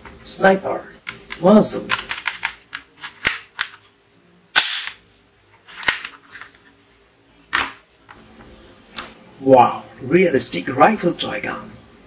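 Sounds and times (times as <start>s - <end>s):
toy pistol snapping: 1.9s - 3.8s, 4.6s - 5.0s, 5.8s - 6.1s.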